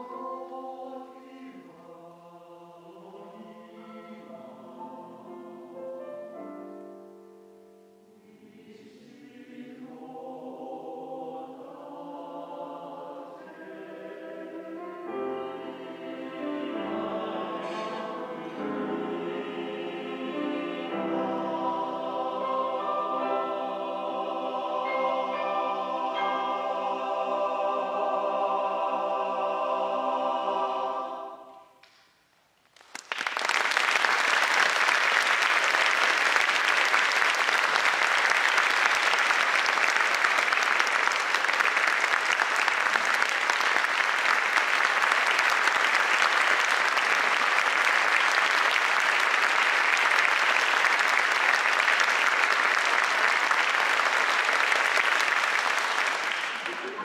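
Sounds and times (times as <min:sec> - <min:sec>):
men's choir singing a chord: 0:08.2 - 0:31.7
audience applause: 0:32.7 - 0:57.0.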